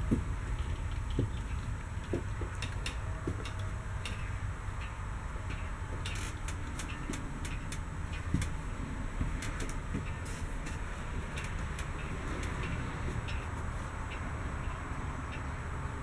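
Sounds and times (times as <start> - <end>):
footsteps on trailer floor: 0.0 - 4.3, 5.9 - 14.0.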